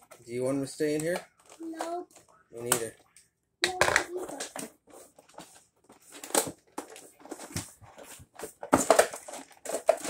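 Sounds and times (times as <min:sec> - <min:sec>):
plastic packaging crinkling: 0:06.0 - 0:10.0.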